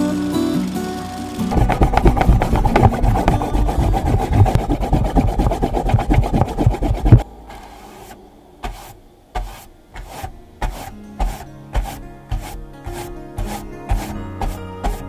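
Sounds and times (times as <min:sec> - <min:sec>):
eraser scrubbing on paper: 0:00.0 - 0:07.2, 0:07.8 - 0:15.0
soft sounds: 0:01.4 - 0:15.0.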